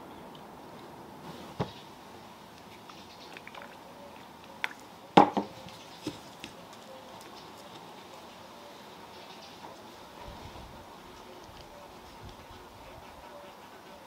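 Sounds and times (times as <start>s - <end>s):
knocks on wooden board: 5.2s - 5.5s.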